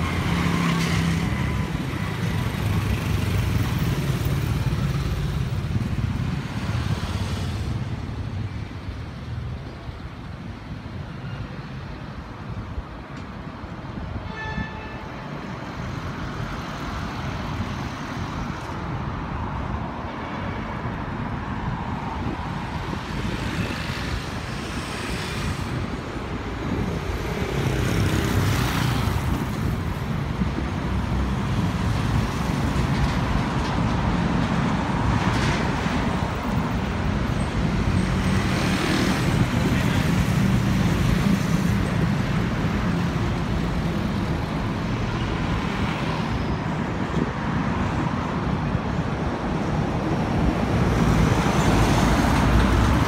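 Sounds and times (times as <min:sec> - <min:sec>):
traffic rumble: 0:00.0 - 0:14.3, 0:15.0 - 0:53.0
vehicles passing: 0:00.0 - 0:53.0
car horn toot: 0:14.3 - 0:15.1.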